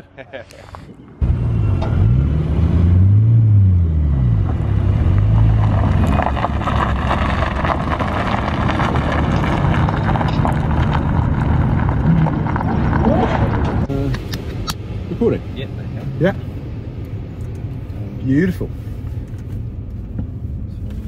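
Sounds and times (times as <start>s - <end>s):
car engine revving: 0.6s - 15.4s
tyres crunching over gravel: 5.0s - 13.9s.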